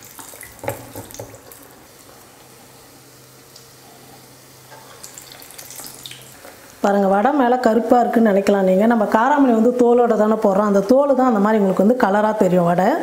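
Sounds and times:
batter sizzling in hot oil: 0:00.0 - 0:07.9.

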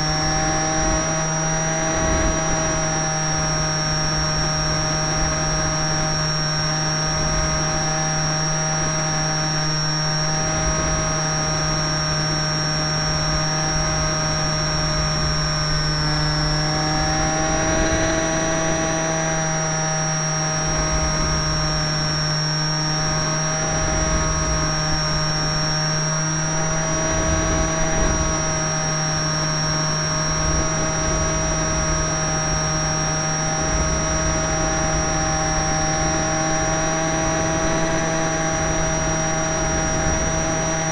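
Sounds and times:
model airplane motor whine: 0:00.0 - 0:40.9
wind buffeting microphone: 0:20.6 - 0:40.9.

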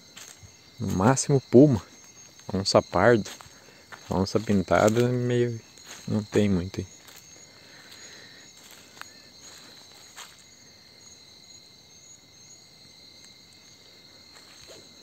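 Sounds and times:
soft footsteps: 0:00.0 - 0:01.1, 0:02.0 - 0:10.6, 0:14.3 - 0:15.0
insects trilling: 0:00.0 - 0:15.0.

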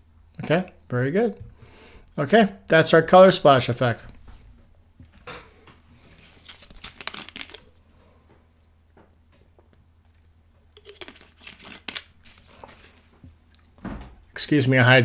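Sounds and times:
crinkling and handling noises: 0:04.1 - 0:13.8.

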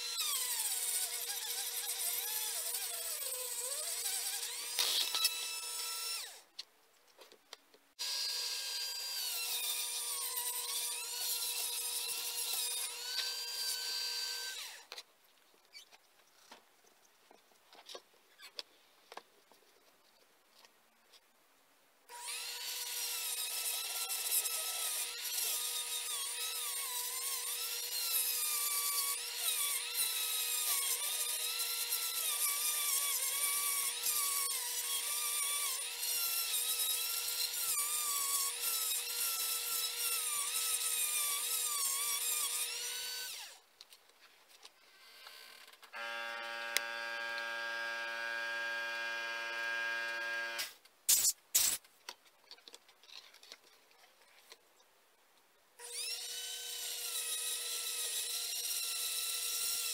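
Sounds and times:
rotary tool grinding metal: 0:00.0 - 0:06.4, 0:08.0 - 0:14.9, 0:22.1 - 0:43.6, 0:55.8 - 0:59.9.

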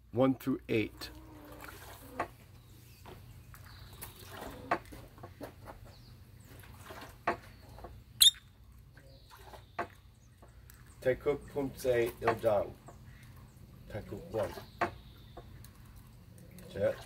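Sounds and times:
faint high bird calls: 0:07.6 - 0:09.8
sharp high chirp: 0:08.2 - 0:08.4.

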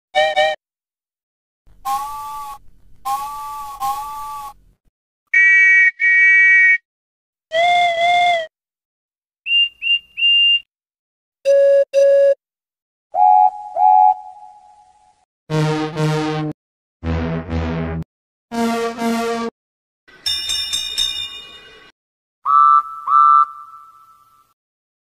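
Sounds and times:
train whistle and horn calls: 0:01.9 - 0:04.6.

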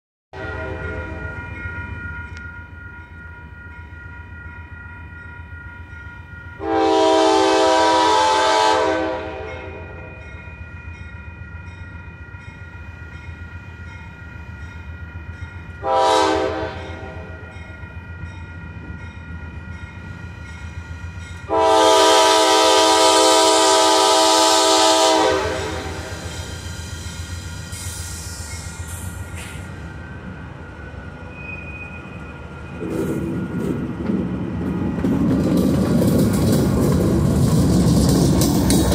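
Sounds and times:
locomotive air horn: 0:00.3 - 0:01.2, 0:06.6 - 0:10.1, 0:15.8 - 0:17.4, 0:21.5 - 0:26.3
crossing signal bell ringing: 0:00.4 - 0:07.5, 0:09.3 - 0:23.2, 0:25.2 - 0:34.0
train rumbling: 0:00.4 - 0:38.9.

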